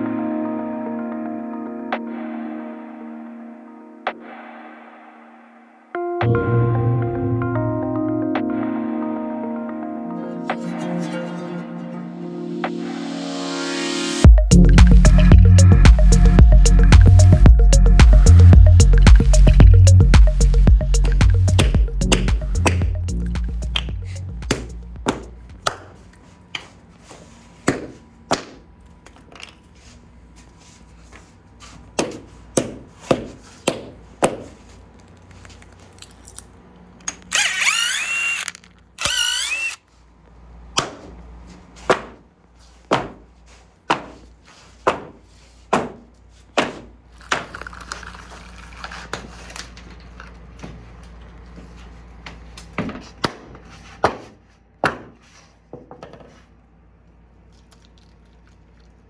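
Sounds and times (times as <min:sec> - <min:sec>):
impact driver running: 0:37.3 - 0:39.8.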